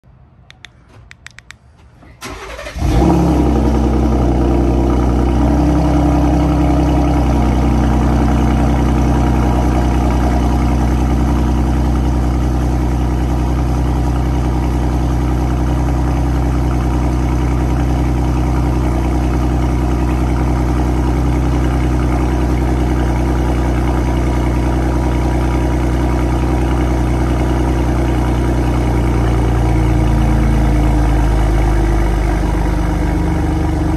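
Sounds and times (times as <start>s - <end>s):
engine starting and idling: 0.8s - 5.5s.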